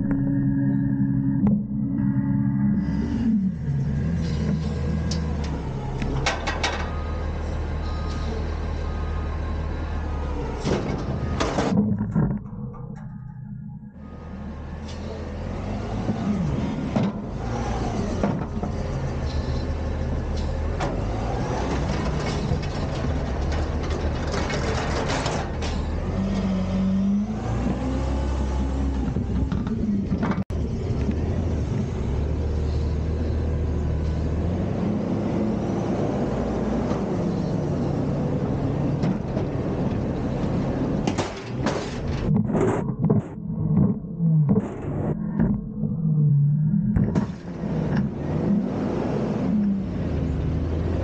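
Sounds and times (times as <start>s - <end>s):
garbage truck engine revving: 0.0s - 51.0s
metal knocks and clanks: 6.1s - 7.0s, 41.0s - 45.6s.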